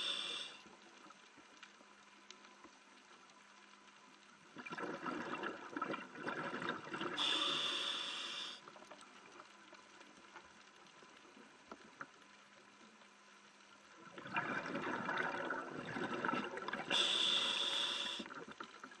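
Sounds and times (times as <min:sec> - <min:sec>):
bubbles gurgling: 0:04.5 - 0:07.4, 0:14.0 - 0:17.1
regulator hissing: 0:07.2 - 0:08.6, 0:17.0 - 0:18.2.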